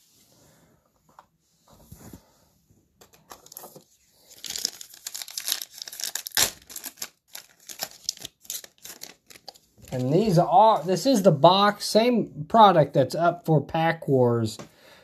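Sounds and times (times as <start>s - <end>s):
foil wrapper crinkling and tearing: 4.2s - 10.2s.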